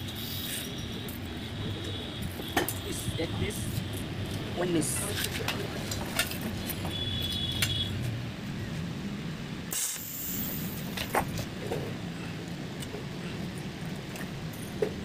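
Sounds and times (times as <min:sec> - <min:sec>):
brief hiss: 0:09.7 - 0:10.8.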